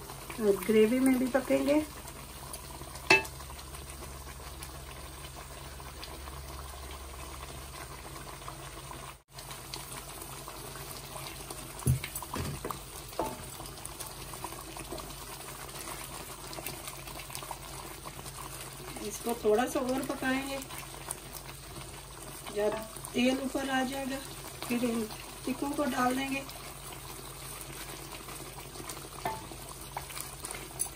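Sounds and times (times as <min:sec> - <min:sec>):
thick sauce bubbling in oil: 0:00.0 - 0:30.9
wooden spoon knocking on pan: 0:03.1 - 0:03.3, 0:11.8 - 0:13.5, 0:29.2 - 0:29.6.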